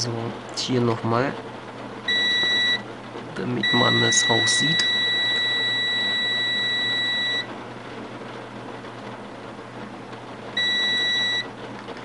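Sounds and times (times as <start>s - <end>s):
multimeter continuity beep: 2.1s - 2.9s, 3.5s - 7.5s, 10.6s - 11.5s.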